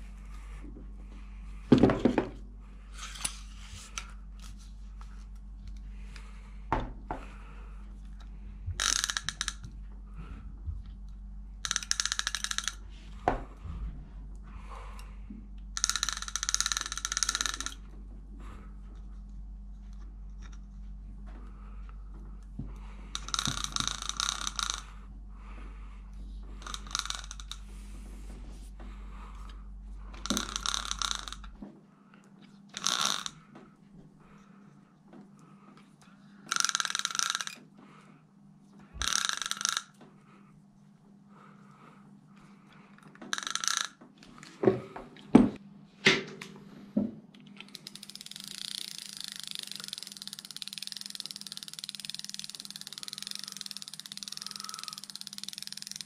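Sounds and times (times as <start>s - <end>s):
fishing reel clicking whir: 8.1s - 9.8s, 11.6s - 12.9s, 15.8s - 17.9s, 22.8s - 25.1s, 26.6s - 27.8s, 29.3s - 31.6s, 32.7s - 33.4s, 36.4s - 37.7s, 39.0s - 40.0s, 43.0s - 44.0s, 47.6s - 56.0s.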